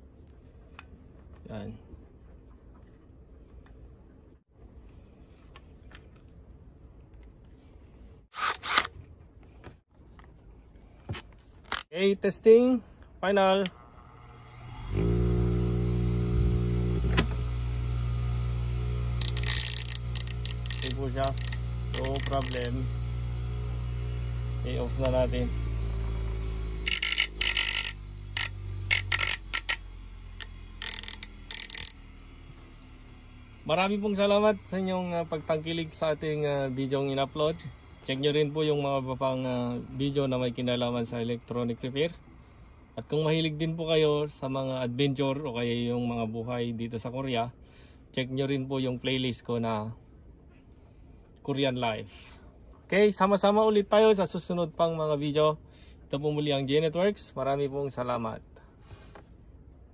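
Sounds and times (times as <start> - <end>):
drill driving a screw: 8.3 - 8.9, 14.0 - 37.7
scissor blades scraping grinding wheel: 8.3 - 8.9, 14.0 - 33.0
bench grinder motor hum: 13.7 - 42.0.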